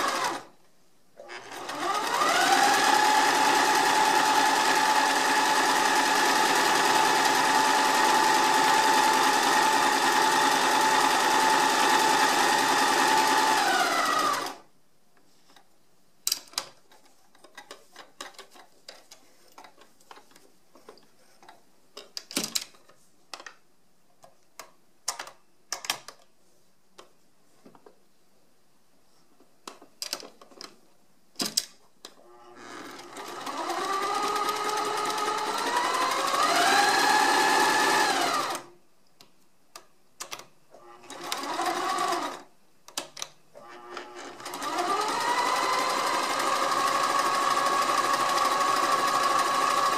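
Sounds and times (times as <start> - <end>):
sewing machine running: 0.0 - 0.5, 1.3 - 14.6, 32.7 - 38.7, 41.0 - 42.4, 44.2 - 49.9.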